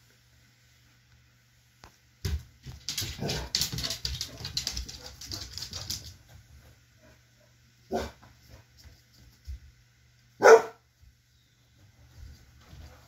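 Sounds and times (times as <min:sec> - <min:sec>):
dog barking: 0:07.9 - 0:08.2, 0:10.4 - 0:10.8
rustling and scuffling: 0:11.0 - 0:13.0.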